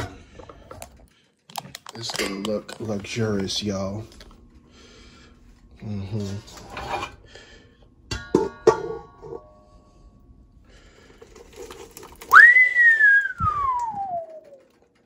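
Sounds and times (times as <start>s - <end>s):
falling pitch whistle: 12.3s - 14.6s.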